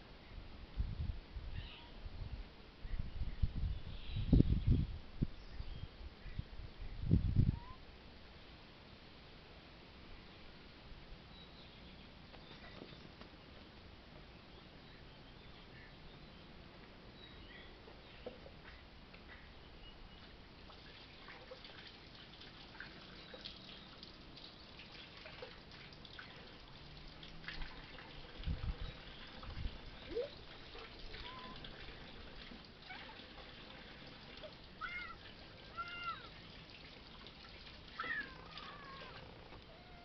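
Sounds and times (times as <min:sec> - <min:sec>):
outdoor background: 0:00.0 - 0:40.0
kittens meowing: 0:34.8 - 0:36.3, 0:38.0 - 0:40.0.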